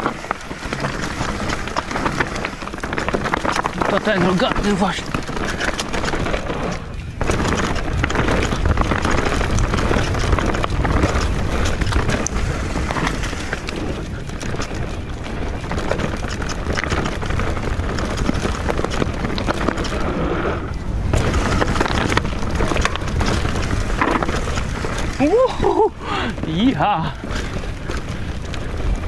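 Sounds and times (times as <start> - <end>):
bike rattling with clicks: 0.0 - 29.0
bike tyres rolling on dirt: 0.0 - 29.0
low rumble: 16.7 - 26.5.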